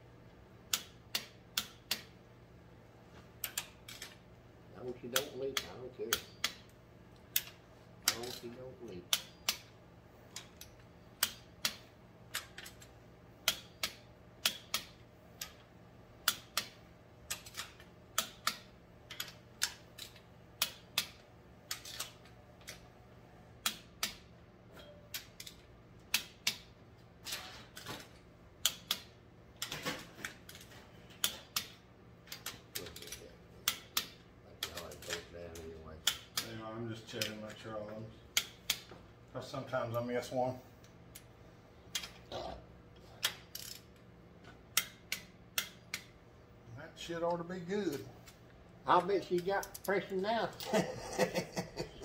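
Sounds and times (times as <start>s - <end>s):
torque wrench clicking: 3.4s - 4.2s, 10.3s - 15.6s, 16.2s - 22.8s, 28.6s - 29.7s, 43.2s - 44.0s, 44.7s - 46.1s.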